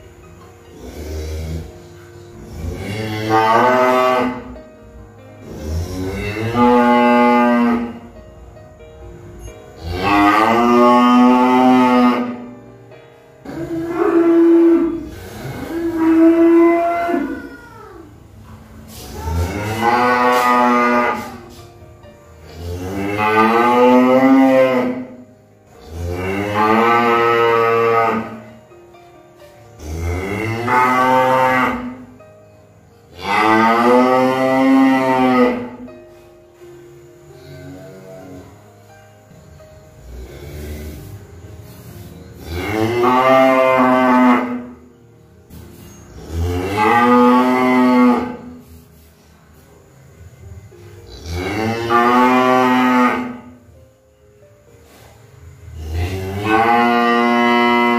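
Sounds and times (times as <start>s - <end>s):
cow mooing: 2.4s - 4.6s, 5.4s - 8.1s, 9.8s - 12.5s, 13.4s - 17.6s, 18.9s - 21.6s, 22.5s - 25.2s, 25.8s - 28.5s, 29.8s - 32.1s, 33.1s - 35.9s, 42.4s - 44.8s, 46.1s - 48.7s, 51.1s - 53.6s, 55.7s - 57.9s.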